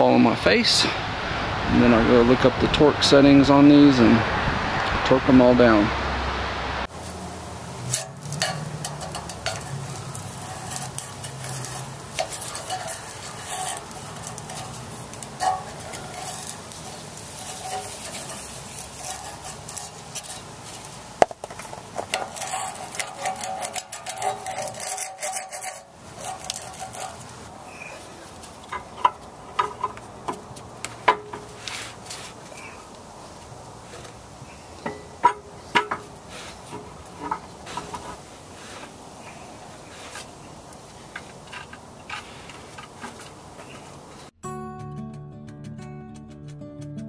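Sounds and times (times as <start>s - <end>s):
gasket scraped off metal: 7.8s - 32.4s.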